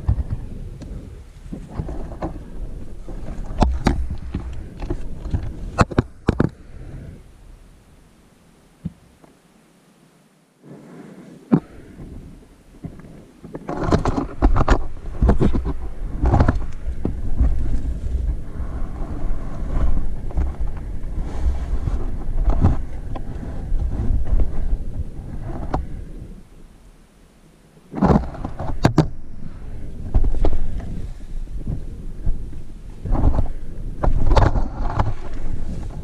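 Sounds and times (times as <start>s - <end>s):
clothing scraping over rock: 0.0s - 7.2s, 10.6s - 26.4s, 27.9s - 36.0s
small knocks: 3.0s - 6.6s.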